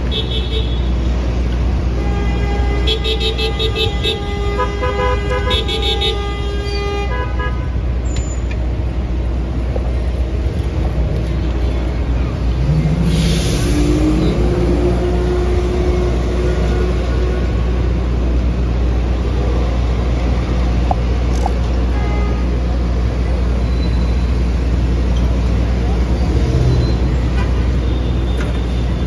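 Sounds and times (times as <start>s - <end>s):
vehicle engines rumbling: 0.0s - 29.0s
heavy engine revving: 12.5s - 17.7s
bus air brakes hissing: 12.9s - 14.8s.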